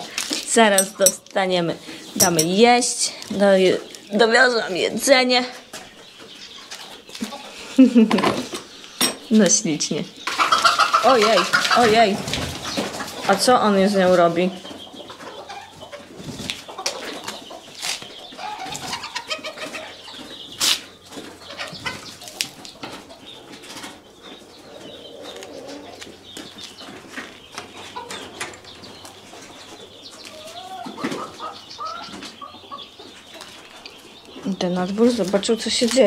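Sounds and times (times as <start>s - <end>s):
chickens clucking and squawking: 0.0s - 36.0s.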